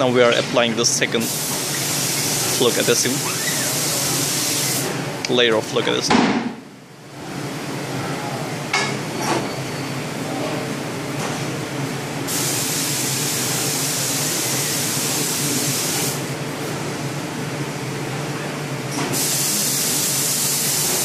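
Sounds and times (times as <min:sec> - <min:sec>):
workshop machinery hum: 0:00.0 - 0:21.0
loud steady hiss: 0:01.1 - 0:04.9, 0:12.2 - 0:16.3, 0:19.2 - 0:21.0.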